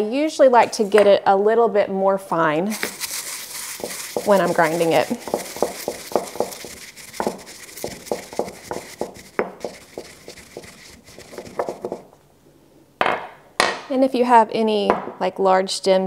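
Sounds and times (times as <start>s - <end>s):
pestle grinding in stone mortar: 2.7s - 12.1s.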